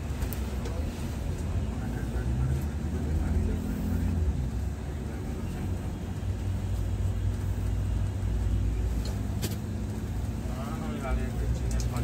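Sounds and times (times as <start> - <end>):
diesel engine droning: 0.0 - 12.0
road noise: 0.0 - 12.0.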